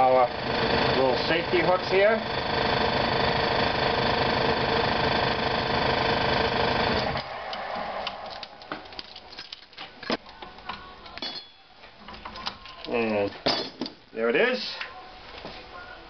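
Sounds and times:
power tool running: 0.0 - 9.3.

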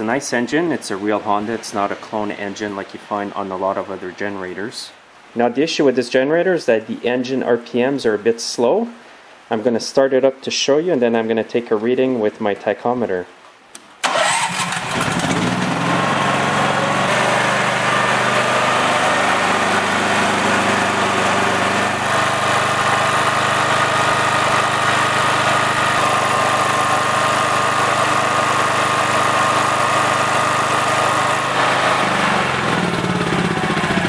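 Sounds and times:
generator engine running: 14.0 - 34.0.

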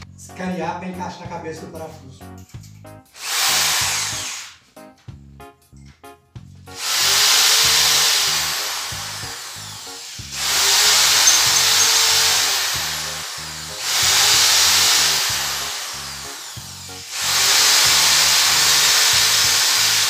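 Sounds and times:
electric drill cutting metal: 3.1 - 4.6, 6.7 - 20.0.

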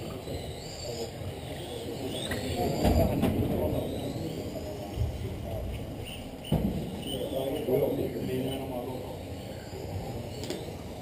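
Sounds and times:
rc car motors whining: 0.0 - 6.2.

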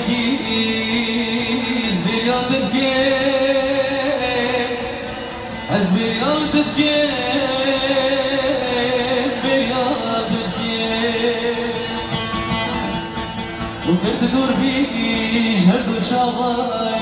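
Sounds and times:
music: 0.0 - 17.0.

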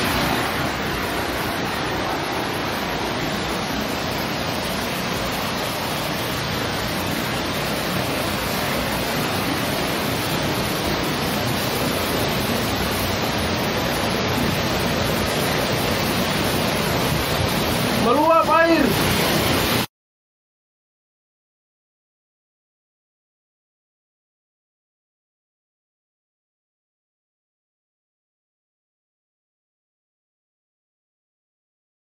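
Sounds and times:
heavy rain pouring: 0.0 - 19.9
rushing floodwater: 0.0 - 19.9.

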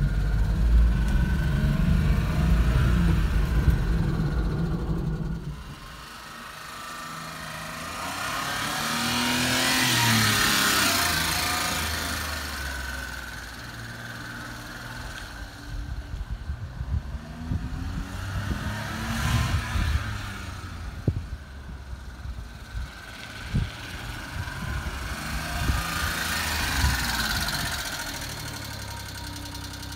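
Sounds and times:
small truck driving past: 0.0 - 15.8, 22.1 - 29.9
wind buffeting microphone: 15.8 - 27.9.

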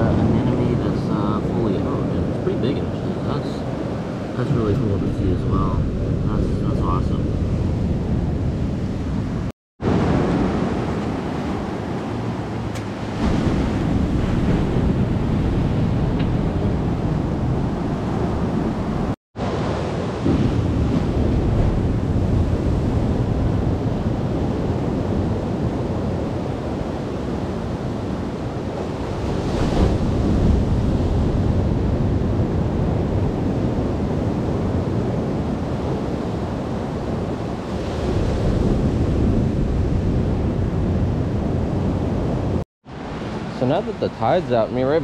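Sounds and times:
ocean surf breaking: 0.0 - 45.0
wind buffeting microphone: 0.0 - 45.0.

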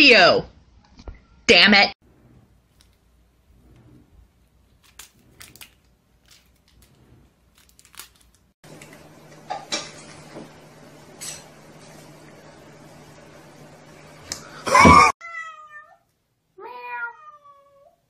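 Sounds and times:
cat crunching food: 4.5 - 9.0.

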